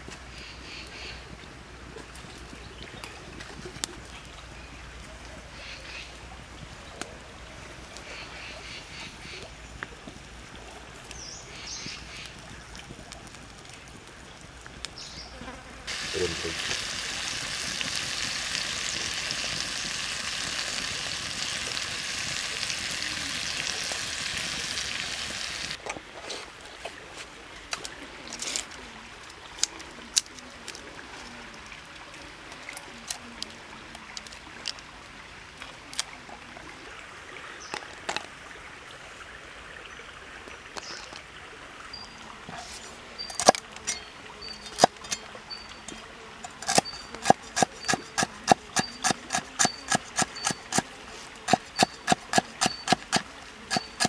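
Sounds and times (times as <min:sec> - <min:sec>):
food sizzling on hot stone: 0:15.9 - 0:25.8, 0:42.6 - 0:54.0.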